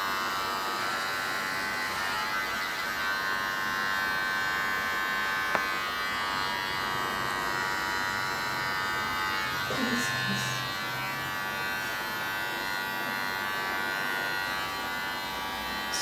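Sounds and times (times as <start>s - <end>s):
electric hair clippers buzzing: 0.0s - 16.0s.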